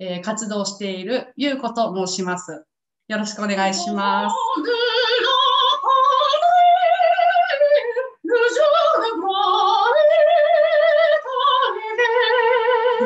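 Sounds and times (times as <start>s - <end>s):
soprano singing operatic: 3.6s - 13.0s.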